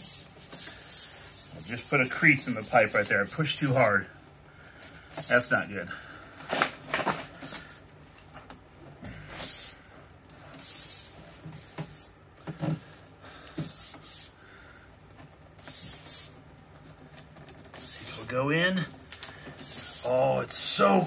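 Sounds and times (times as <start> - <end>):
short hissing rushes: 9.3 - 9.9, 10.6 - 12.1, 13.6 - 14.5, 15.6 - 16.4, 17.8 - 18.3, 19.5 - 20.2.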